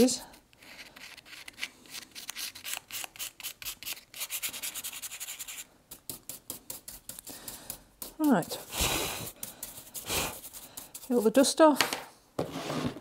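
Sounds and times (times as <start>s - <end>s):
sanding block rubbing: 8.0s - 11.5s.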